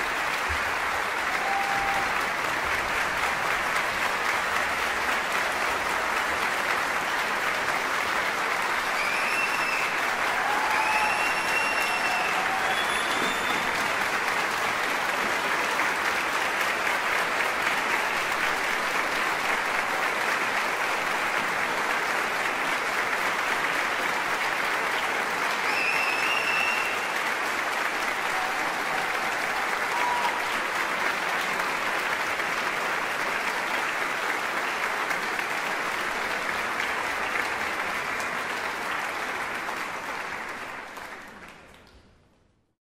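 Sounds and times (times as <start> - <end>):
audience cheering: 0.0 - 3.0, 8.7 - 15.3, 25.5 - 31.5
audience applauding: 0.0 - 42.1.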